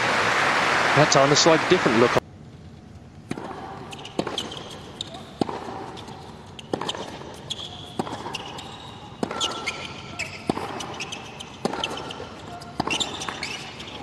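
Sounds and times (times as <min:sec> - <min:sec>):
tennis ball struck by rackets: 0:03.2 - 0:14.0.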